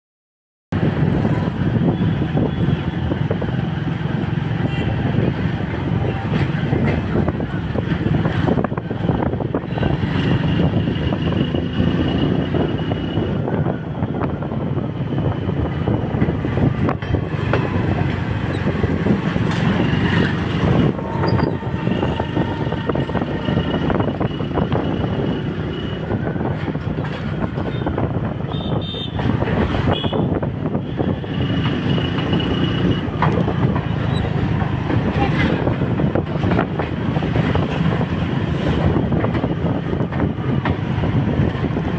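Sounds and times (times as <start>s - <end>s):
motorbike running: 0.8s - 41.9s
train coaches rumbling on track: 0.8s - 41.9s.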